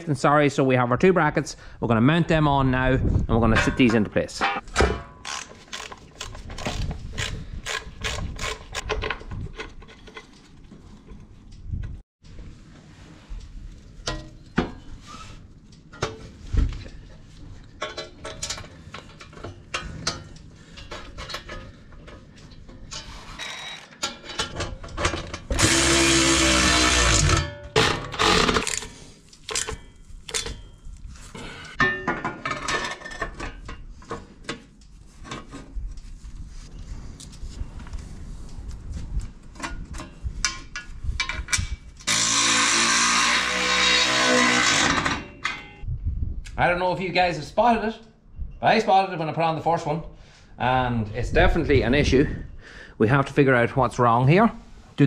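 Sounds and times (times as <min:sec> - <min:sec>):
cordless power tool driving bolt: 0:25.5 - 0:29.8, 0:42.0 - 0:45.2.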